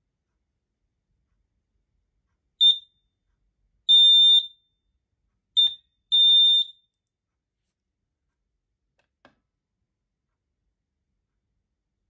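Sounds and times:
high-pitched alarm beeps: 5.6 - 6.8.

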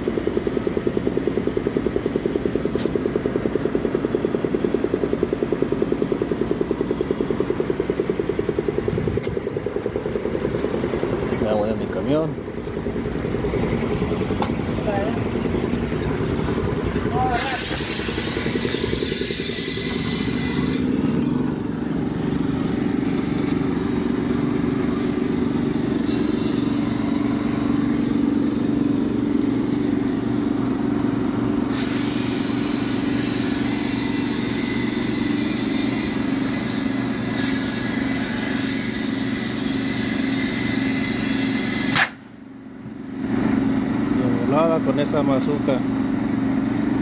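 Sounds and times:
engine humming: 0.0 - 35.3.

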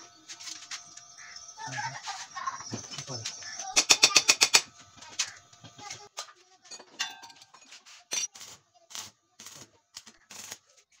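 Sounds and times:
metal tools clicking and knocking: 3.7 - 8.4.

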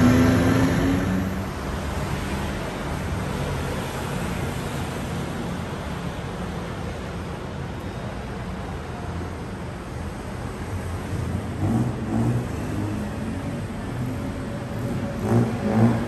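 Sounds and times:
city street traffic: 0.0 - 16.0.

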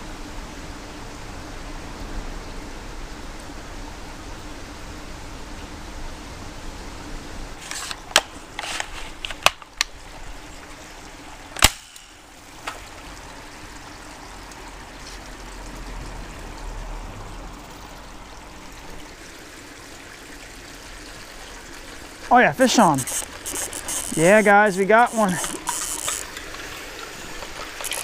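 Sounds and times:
flowing creek water: 0.0 - 28.0
clicks and knocks of fishing tackle: 22.9 - 28.0.

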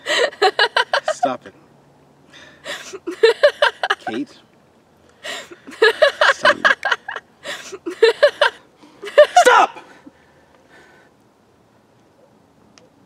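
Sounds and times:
man laughing loudly: 0.0 - 1.3, 2.7 - 4.2, 5.3 - 10.0.

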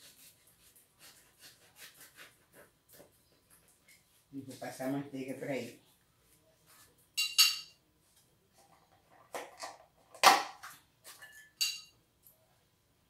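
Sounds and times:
table knife knocking and clinking: 7.2 - 7.8, 11.2 - 11.9.

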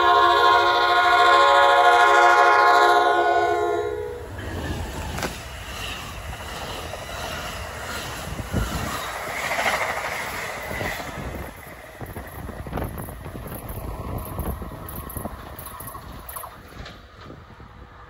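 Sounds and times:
locomotive horn blast: 0.0 - 4.4
train coaches rushing past: 0.0 - 18.0
wheel and rail rumble: 0.0 - 18.0.

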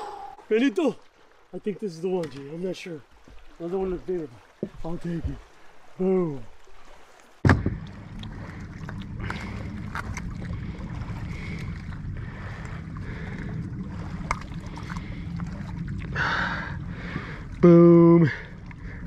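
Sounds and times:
low rumble: 7.4 - 19.0.

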